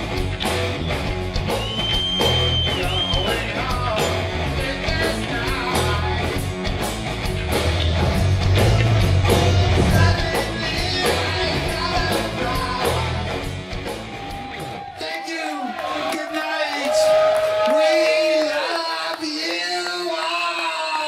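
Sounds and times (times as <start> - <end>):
heavy metal band playing: 0.0 - 15.2
man singing: 2.6 - 6.4, 9.3 - 13.4, 17.8 - 21.0.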